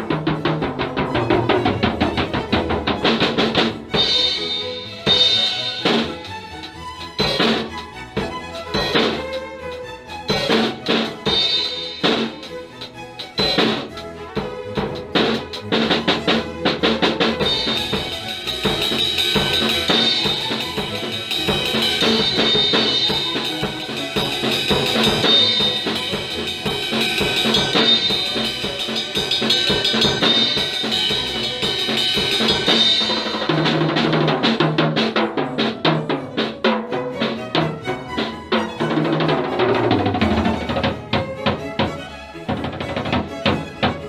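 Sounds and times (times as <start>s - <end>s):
fast drum strokes: 0.0s - 44.0s
cymbal wash: 17.4s - 33.6s.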